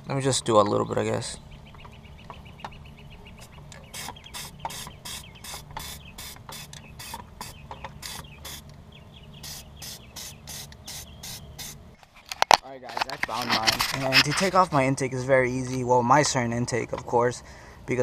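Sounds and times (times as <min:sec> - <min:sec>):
aerosol spray can hissing: 0:03.9 - 0:08.6, 0:09.4 - 0:11.8.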